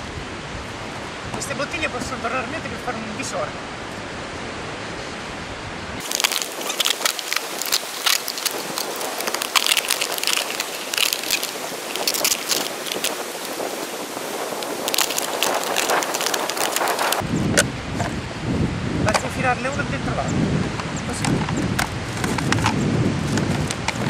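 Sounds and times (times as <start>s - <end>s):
plastic bottle crackling: 6.0s - 17.2s
steady hiss: 6.0s - 17.2s.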